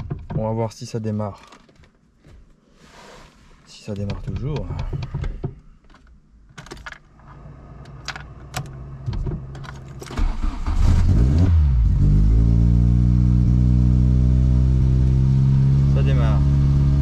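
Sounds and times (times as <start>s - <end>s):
car engine cranking and starting: 3.9s - 17.0s.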